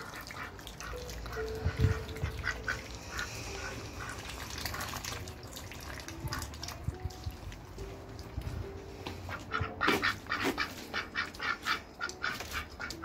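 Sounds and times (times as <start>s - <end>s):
ducks quacking: 0.0s - 5.0s, 9.3s - 13.0s
duck splashing in water: 0.0s - 7.4s, 9.3s - 13.0s.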